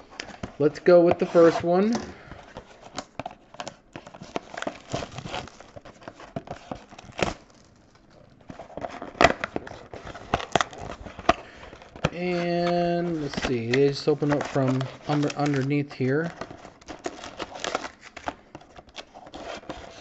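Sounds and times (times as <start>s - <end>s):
plastic wrap crinkling and tearing: 0.0s - 20.0s.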